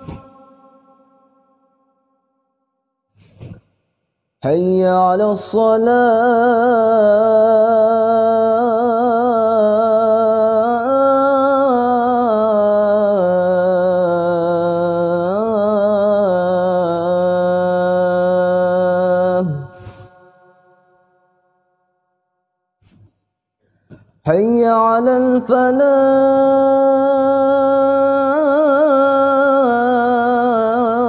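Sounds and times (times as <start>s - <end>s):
boy chanting call to prayer: 0.0s - 1.2s, 4.4s - 20.6s, 24.2s - 31.0s.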